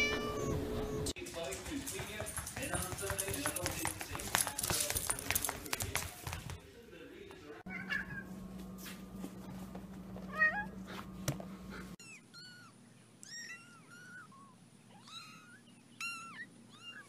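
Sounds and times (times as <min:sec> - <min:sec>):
kittens mewing: 0:11.8 - 0:17.0
cat meowing: 0:12.0 - 0:17.0.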